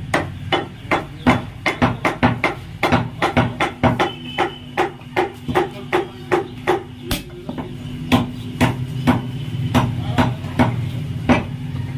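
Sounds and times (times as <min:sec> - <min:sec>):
cleaver chopping meat and bone: 0:00.0 - 0:11.8.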